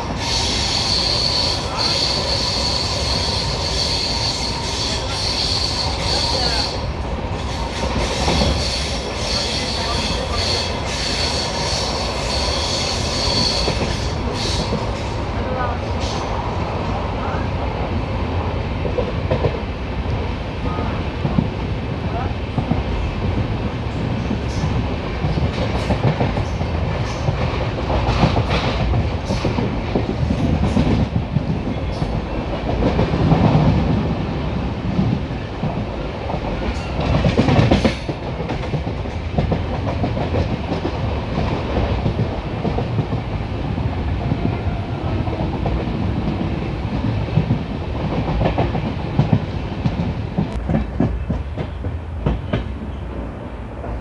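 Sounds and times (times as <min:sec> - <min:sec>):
train wheels clattering over rail joints: 0:34.9 - 0:43.5.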